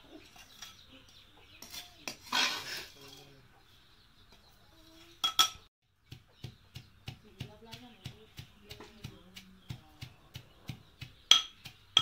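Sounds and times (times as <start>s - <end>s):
steel ladle scraping a tumbler: 1.6s - 3.3s.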